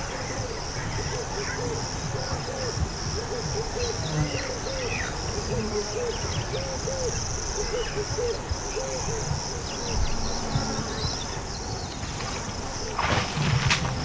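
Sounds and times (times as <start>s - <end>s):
insects chirring: 0.0s - 14.0s
low rustling: 11.9s - 14.0s.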